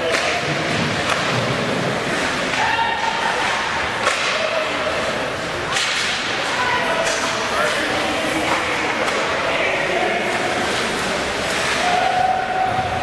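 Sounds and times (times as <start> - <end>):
hockey sticks cracking on puck: 0.0 - 4.8, 5.6 - 9.6
skates scraping ice: 0.0 - 13.0
players and spectators shouting: 2.5 - 5.0, 11.7 - 13.0.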